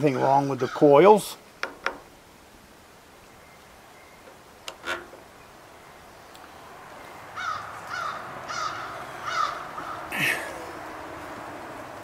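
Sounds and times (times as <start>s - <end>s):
bird harsh calls: 7.4s - 10.8s.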